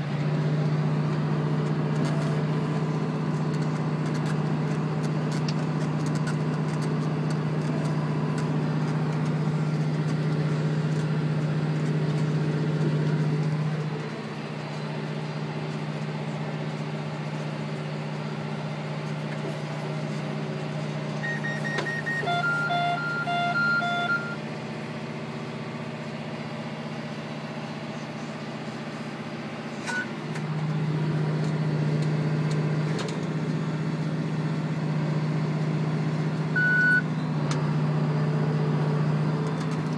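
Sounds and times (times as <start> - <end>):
tractor engine running: 0.0 - 39.9
electronic beeps: 21.2 - 24.4, 36.6 - 37.0.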